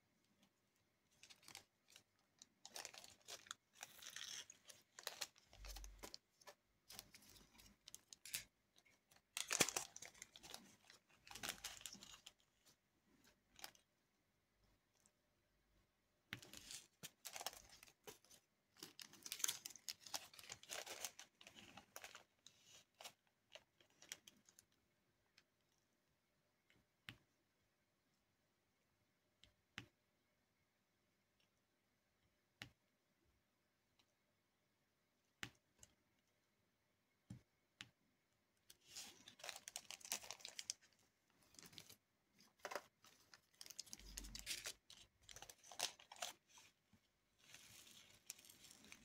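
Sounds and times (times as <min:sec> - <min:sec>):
plastic crinkling and rustling: 0:01.0 - 0:13.9, 0:16.4 - 0:24.7, 0:38.8 - 0:46.8, 0:47.4 - 0:49.0.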